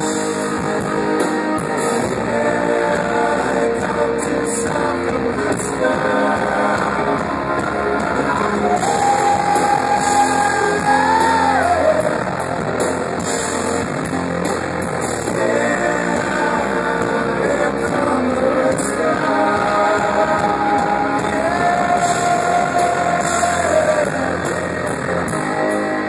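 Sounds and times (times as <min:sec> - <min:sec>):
live rock band playing: 0:00.0 - 0:26.0
person singing long notes: 0:01.8 - 0:12.5, 0:15.2 - 0:25.2.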